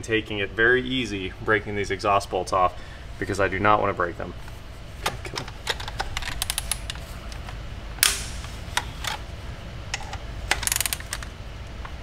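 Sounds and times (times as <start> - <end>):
loud sharp crack: 8.0 - 8.6
ratchet clicking: 10.5 - 11.2.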